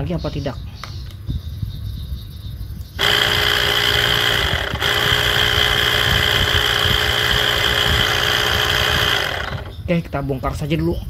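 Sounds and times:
pump motor whining: 0:03.0 - 0:09.8.

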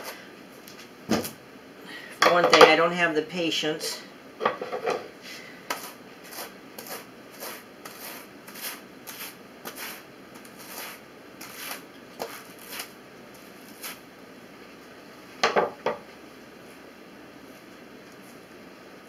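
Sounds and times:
hand carders brushing wool: 0:05.7 - 0:14.0.

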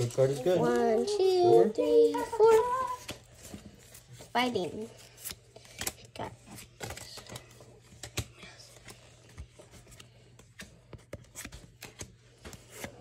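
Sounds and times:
trading cards flicking and sliding: 0:04.9 - 0:13.0.

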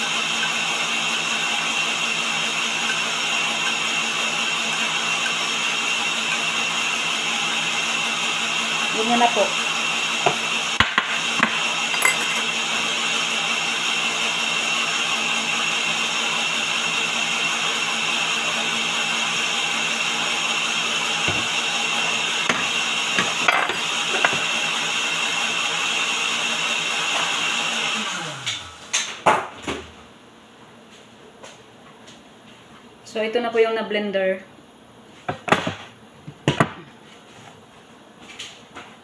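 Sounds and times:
electric blender running: 0:00.0 - 0:28.9
bowls and utensils knocking: 0:12.0 - 0:12.5, 0:23.2 - 0:24.4.

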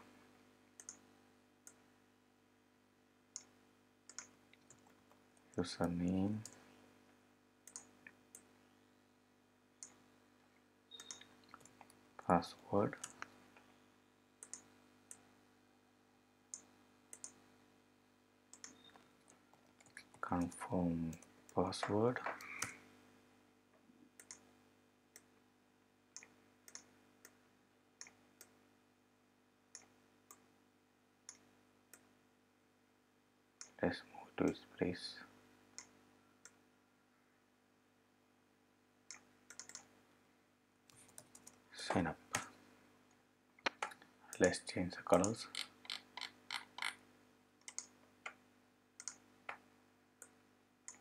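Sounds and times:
faint steady hum: 0:00.0 - 0:51.0
computer mouse clicks: 0:00.8 - 0:01.0, 0:03.3 - 0:06.6, 0:07.6 - 0:08.5, 0:10.9 - 0:12.0, 0:14.4 - 0:15.3, 0:16.5 - 0:17.4, 0:18.5 - 0:20.5, 0:21.1 - 0:22.8, 0:24.2 - 0:24.5, 0:26.2 - 0:27.4, 0:28.0 - 0:28.6, 0:29.7 - 0:30.4, 0:39.1 - 0:39.9, 0:40.9 - 0:41.6, 0:43.6 - 0:47.0, 0:47.6 - 0:48.4, 0:49.0 - 0:49.6, 0:50.2 - 0:51.0.

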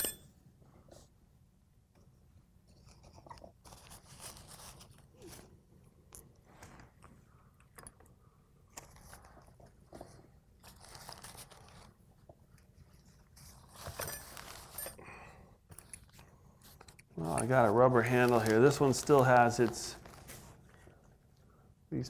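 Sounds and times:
rustling: 0:08.7 - 0:15.0, 0:15.7 - 0:21.1
paper towel crinkling: 0:16.6 - 0:21.1.

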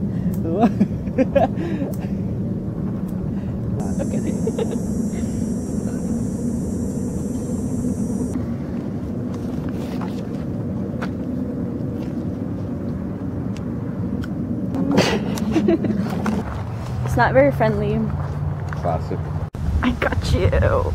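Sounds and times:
low outdoor rumble: 0:00.0 - 0:16.6
high steady hiss: 0:03.8 - 0:08.4.

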